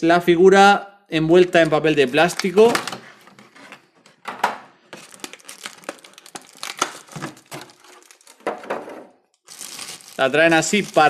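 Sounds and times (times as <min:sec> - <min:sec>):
plastic packaging crinkling: 0:02.1 - 0:03.6, 0:04.9 - 0:11.0.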